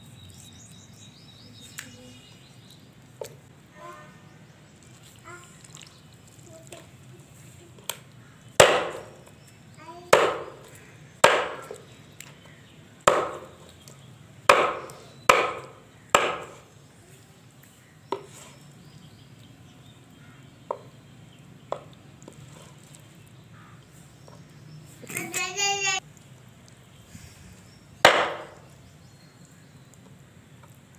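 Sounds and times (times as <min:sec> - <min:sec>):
knife chopping on wooden block: 0:08.6 - 0:09.3, 0:10.1 - 0:11.8, 0:13.1 - 0:13.6, 0:14.5 - 0:16.6, 0:28.0 - 0:28.6.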